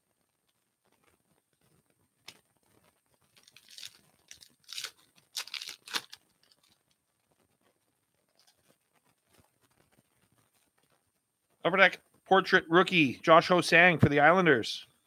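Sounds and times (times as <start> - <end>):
foil wrapper tearing and crinkling: 2.3 - 7.0.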